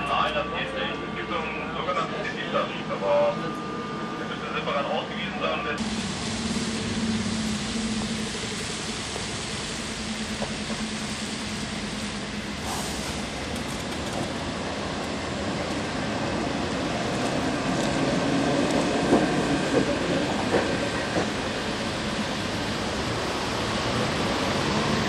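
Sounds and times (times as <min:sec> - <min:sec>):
tram wheels rumbling: 0:00.0 - 0:25.0.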